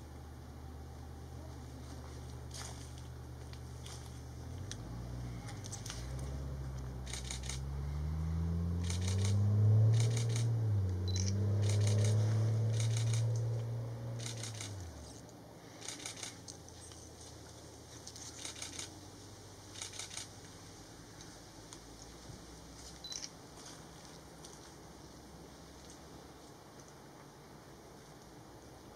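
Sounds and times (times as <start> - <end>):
low engine drone: 0.0 - 26.3
camera shutter clicks: 7.0 - 7.6, 8.8 - 10.5, 11.1 - 13.5, 14.2 - 14.9, 15.8 - 16.4, 18.4 - 18.9, 19.8 - 20.3.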